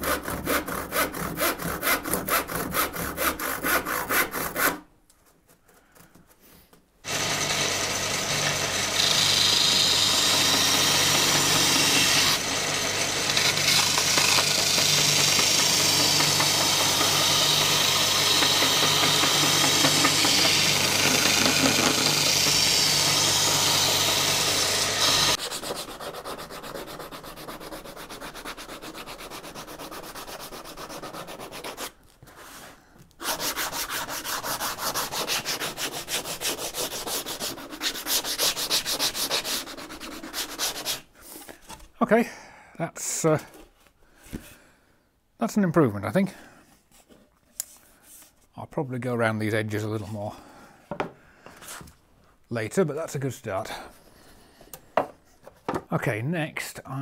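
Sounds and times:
belt sander grinding wood: 7.1 - 27.2
hand-sanding strokes: 22.7 - 41.1.

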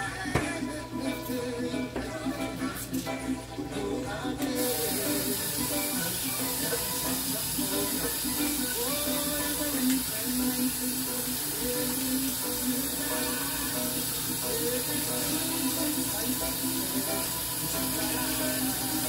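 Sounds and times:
music with sung melody: 0.0 - 19.0
meat frying in a pan: 4.6 - 19.0.

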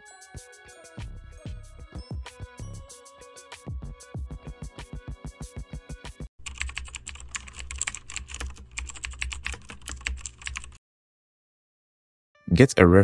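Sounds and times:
background music with steady beat: 0.0 - 6.3
computer keyboard typing: 6.4 - 10.8.

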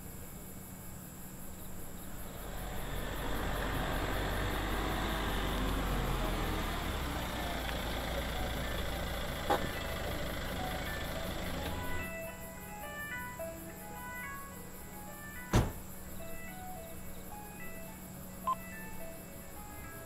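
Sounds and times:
car engine idling: 1.7 - 12.8
car driving up: 2.0 - 12.4.

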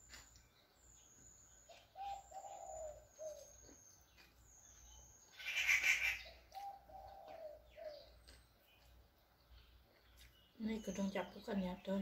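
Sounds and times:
dove cooing: 1.7 - 3.8, 5.4 - 8.2.

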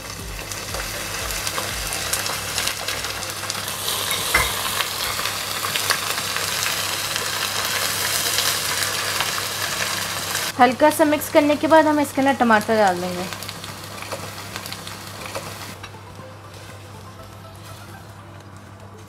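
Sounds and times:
paste sizzling in hot fat: 0.0 - 10.6.

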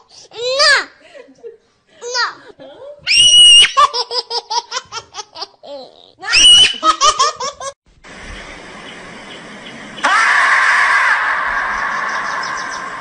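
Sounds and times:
high-pitched laughter: 3.6 - 7.8
steady hiss: 7.9 - 10.1.

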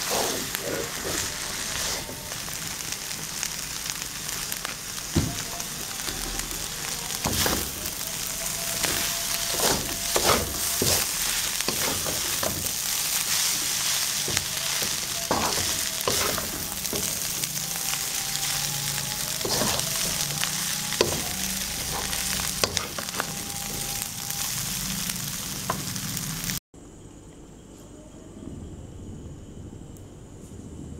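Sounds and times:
wooden spatula scraping a pan: 0.0 - 2.3, 7.2 - 24.5
noodles sizzling in a wok: 0.0 - 26.6.

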